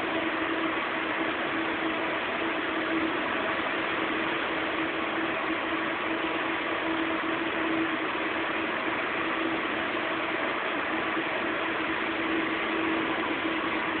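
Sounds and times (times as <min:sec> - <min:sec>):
cooling fans rushing: 0:00.0 - 0:14.0
electrical hum: 0:00.0 - 0:14.0.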